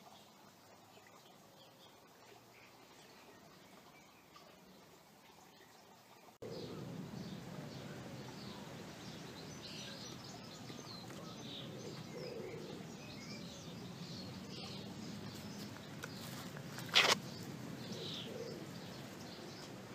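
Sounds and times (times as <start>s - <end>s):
small birds chirping: 0.0s - 19.9s
low steady hum: 6.4s - 19.9s
loud scuffing rustle: 15.3s - 17.5s.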